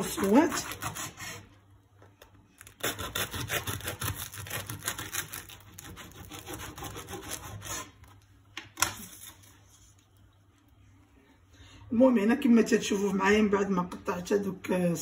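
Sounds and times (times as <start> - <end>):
knife sawing through crusty bread: 0.0 - 1.5, 2.8 - 8.0.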